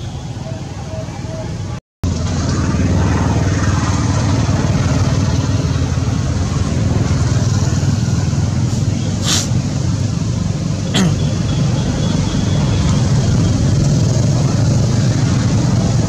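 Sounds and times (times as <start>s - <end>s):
engine humming: 0.0s - 16.0s
short hiss: 8.7s - 9.6s.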